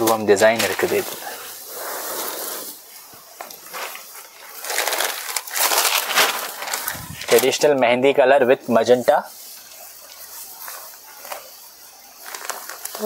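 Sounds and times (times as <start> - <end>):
silk fabric rustling: 3.6 - 7.6.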